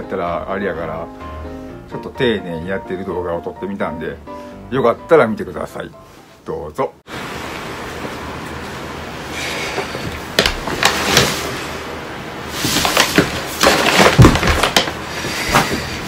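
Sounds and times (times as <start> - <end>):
knocks on wooden floor: 10.0 - 11.3, 12.8 - 15.9
heavy thumps: 12.6 - 16.0.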